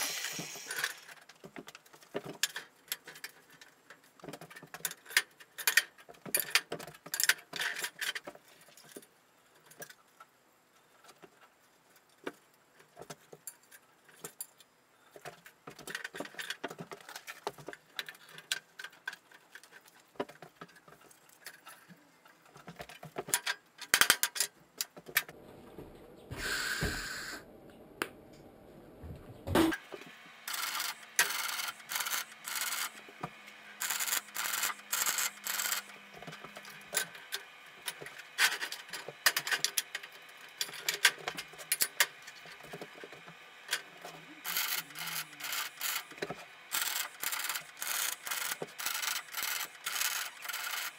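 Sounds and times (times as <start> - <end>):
short tack welds: 0.0 - 1.1, 33.8 - 35.9
welding crackle: 33.8 - 35.9.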